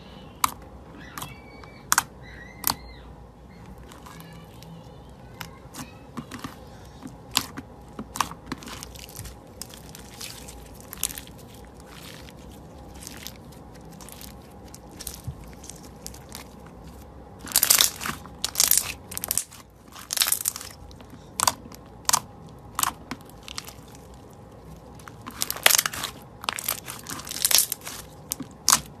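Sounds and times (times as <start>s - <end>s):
wet crackles and pops of slime: 7.1s - 29.0s.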